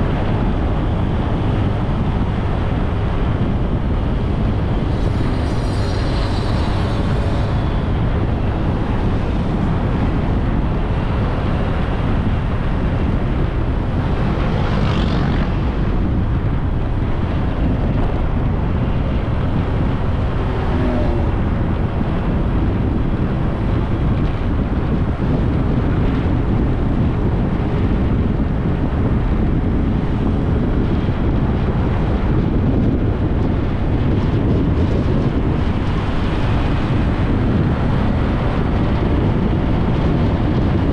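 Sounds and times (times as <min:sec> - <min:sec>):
motorbike engine: 0:00.0 - 0:26.4
wind buffeting microphone: 0:00.0 - 0:40.9
loud hiss: 0:04.9 - 0:07.8.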